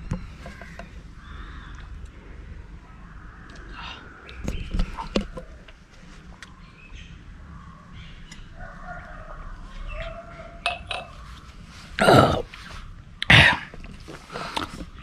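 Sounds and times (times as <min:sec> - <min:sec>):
faint bird chirps: 0:06.4 - 0:11.5
man coughing: 0:13.3 - 0:13.7.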